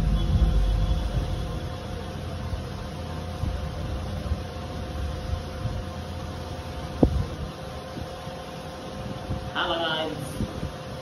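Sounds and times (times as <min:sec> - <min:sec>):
low rumble: 0:00.0 - 0:02.6
faint hum: 0:00.0 - 0:11.0.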